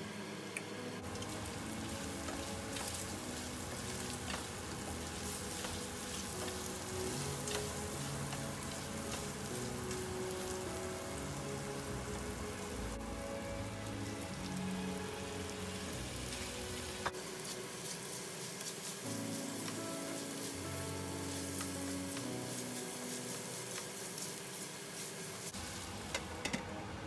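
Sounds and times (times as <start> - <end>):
background music: 0.6 - 24.5
meat sizzling in oil: 1.0 - 26.6
spatula stirring in pan: 1.1 - 12.4, 17.2 - 25.6.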